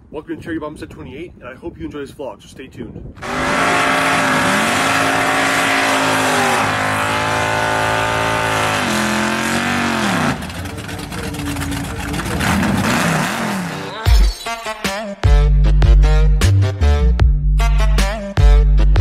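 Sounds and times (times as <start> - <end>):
car engine at high revs: 3.2 - 14.0
tires spinning: 3.2 - 14.0.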